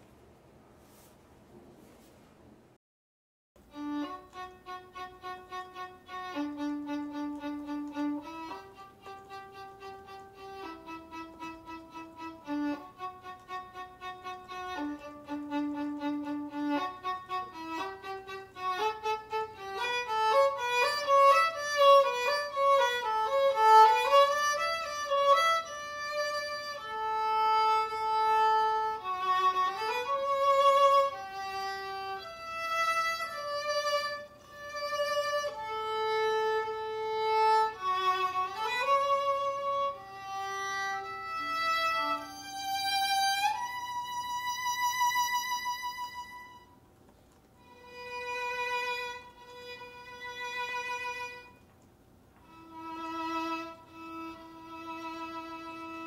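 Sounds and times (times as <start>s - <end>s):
instrumental background music: 3.7s - 44.4s.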